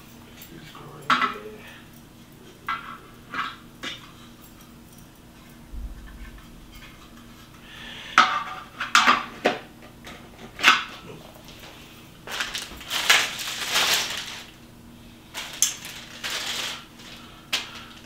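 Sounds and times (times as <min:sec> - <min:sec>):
plastic rustling and scraping: 0:10.6 - 0:14.6, 0:15.3 - 0:18.0.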